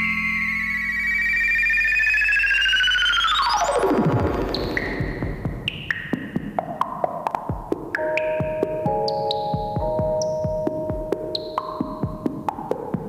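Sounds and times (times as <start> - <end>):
electronic synthesizer music: 0.0 - 6.3, 8.0 - 12.7.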